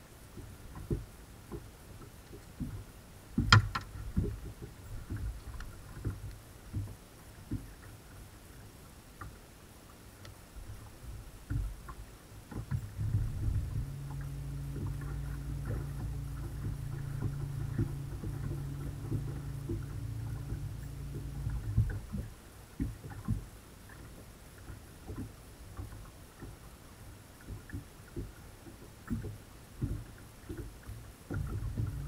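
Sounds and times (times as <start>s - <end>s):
light knocks on boat deck: 3.4s - 5.3s
electric motor humming: 13.0s - 22.2s, 31.5s - 32.0s.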